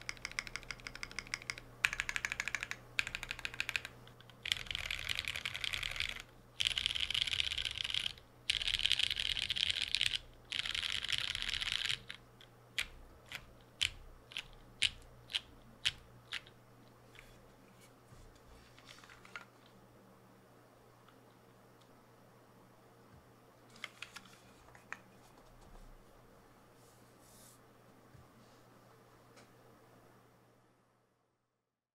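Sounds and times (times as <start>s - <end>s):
mechanical keyboard typing: 0.0s - 12.2s, 12.8s - 16.5s.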